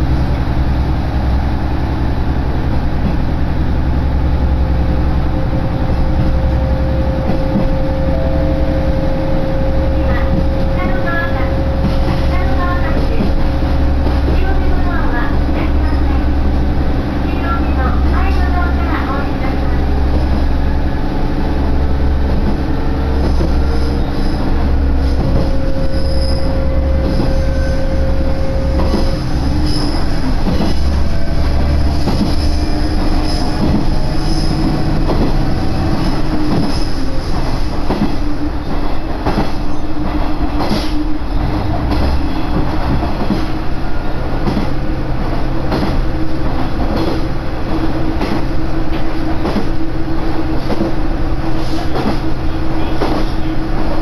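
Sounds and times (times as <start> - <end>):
steady whine: 0.0 - 38.5
droning engine: 0.0 - 51.5
wheels rumbling on rail: 0.0 - 54.0
rail-joint clicks: 3.0 - 3.3, 5.9 - 16.6, 17.4 - 54.0.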